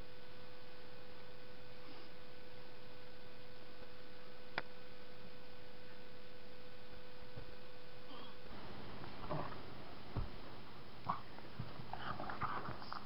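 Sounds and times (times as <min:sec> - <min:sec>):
low electrical hum: 0:00.0 - 0:13.0
steady hiss: 0:08.0 - 0:13.0.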